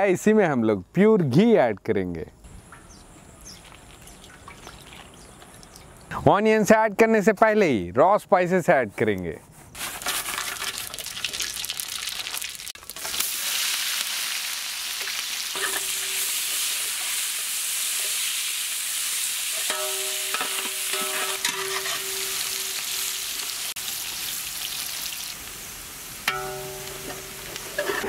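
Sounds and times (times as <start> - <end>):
onions sizzling in hot oil: 10.3 - 28.0
metal spatula stirring: 15.5 - 17.2, 19.5 - 23.1, 26.3 - 28.0.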